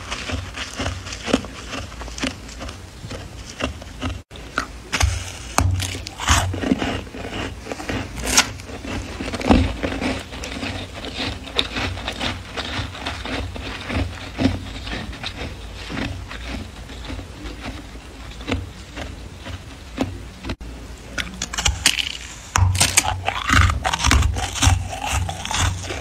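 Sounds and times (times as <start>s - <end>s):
freezer frost crunching: 0.0s - 26.0s.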